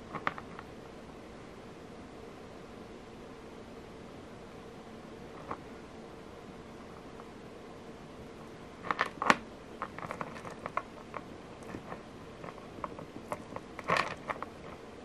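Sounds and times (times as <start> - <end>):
rustling from fingers: 8.8 - 15.0.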